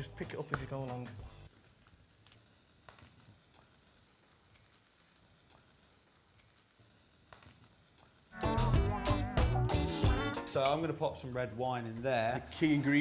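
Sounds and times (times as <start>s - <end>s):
small crackles: 0.0s - 8.4s
food frying in pan: 0.0s - 8.9s.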